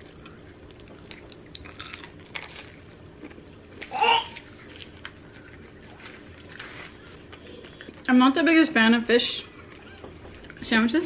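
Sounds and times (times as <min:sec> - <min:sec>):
chewing and biting sandwich: 0:00.0 - 0:08.1
toddler babbling: 0:03.9 - 0:04.4.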